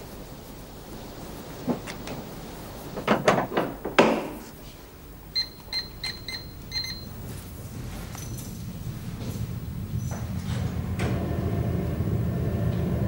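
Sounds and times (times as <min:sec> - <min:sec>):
knocks and clatters: 0:02.9 - 0:04.6
alarm keypad beeps: 0:05.4 - 0:07.2.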